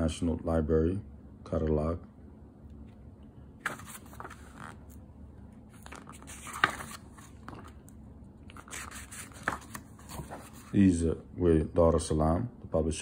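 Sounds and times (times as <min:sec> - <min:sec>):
book pages rustling and turning: 0:03.6 - 0:05.0, 0:05.6 - 0:10.9
paper crackling: 0:03.6 - 0:05.0, 0:05.7 - 0:10.8.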